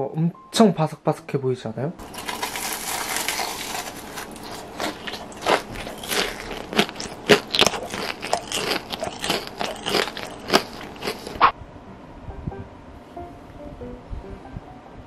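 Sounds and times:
crispy fried crust crunching: 2.0s - 11.5s.

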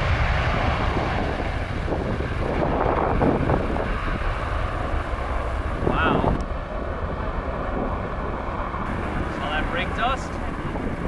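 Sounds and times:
jet engines at takeoff: 0.0s - 11.0s
wind rumbling on microphone: 0.0s - 11.0s.

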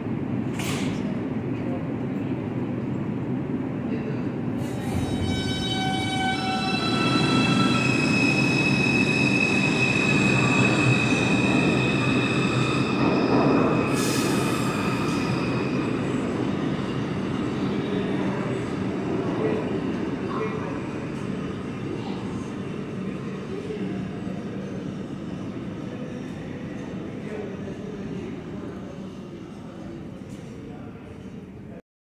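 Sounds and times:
subway train rumble: 0.0s - 31.8s
steel wheels squealing: 4.7s - 17.2s.

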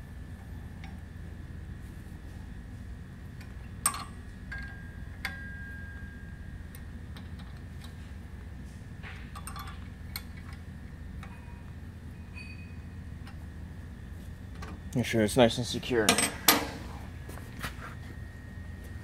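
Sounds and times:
steady low hum: 0.0s - 19.0s
wrench clinking on metal: 9.3s - 10.6s, 16.0s - 16.8s.

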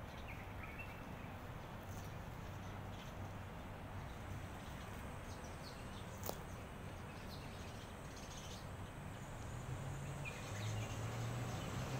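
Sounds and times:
faint bird chirps: 0.0s - 9.0s
low steady hum: 0.0s - 11.9s.

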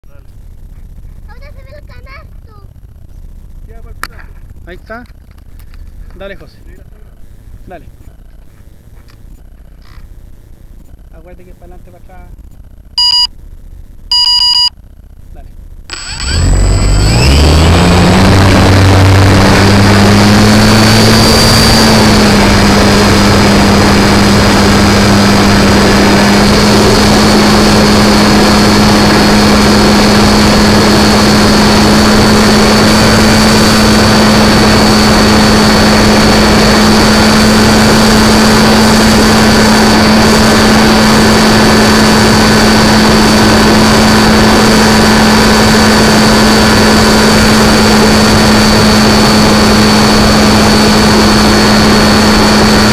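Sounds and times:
model airplane motor and propeller: 15.9s - 52.9s.

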